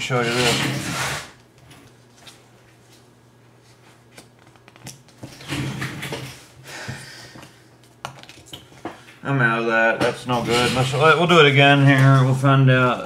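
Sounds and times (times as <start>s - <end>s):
playing cards rustling: 1.4s - 5.4s.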